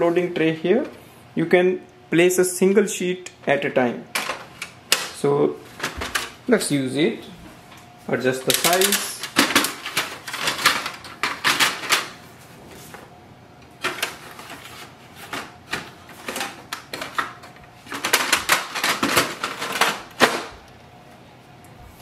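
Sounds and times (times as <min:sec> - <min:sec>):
plastic printer tray clicks and rattles: 0:15.3 - 0:20.5.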